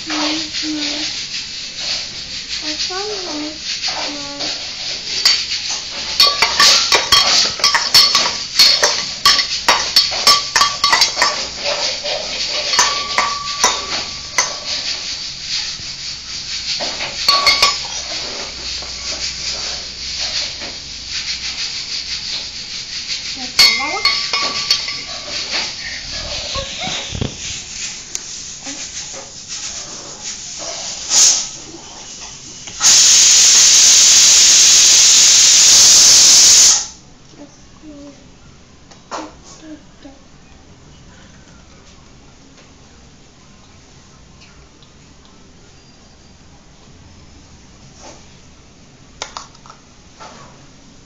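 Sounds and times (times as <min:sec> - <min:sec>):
steel pots and bowls clinking: 0:05.1 - 0:15.8, 0:16.8 - 0:20.7, 0:23.3 - 0:27.3.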